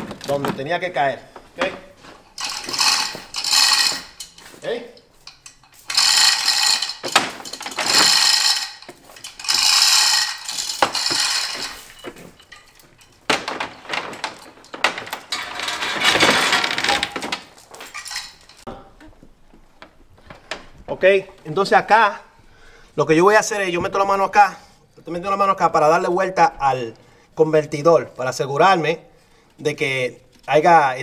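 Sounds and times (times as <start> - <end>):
metal ratcheting and clinking: 2.2 - 18.7.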